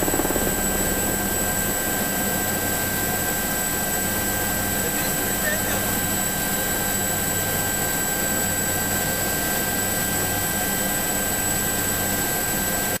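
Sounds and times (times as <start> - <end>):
turbine high whine: 0.0 - 6.9
helicopter rotor rush: 0.0 - 13.0.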